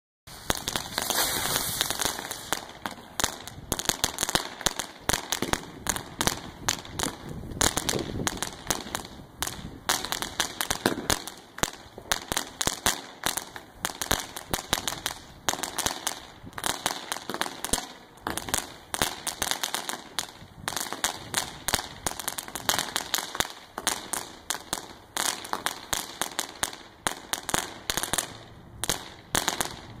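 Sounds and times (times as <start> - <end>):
hissing spray of sparks: 0.3 - 2.7
fireworks crackling and banging: 0.3 - 30.0.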